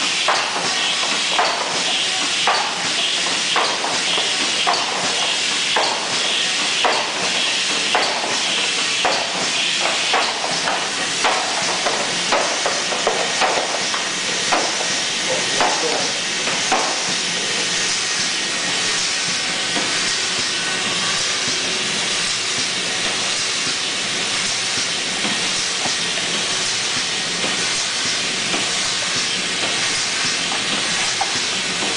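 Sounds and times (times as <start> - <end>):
machine running with hiss: 0.0 - 31.9
sharp clicks and knocks: 9.0 - 15.0.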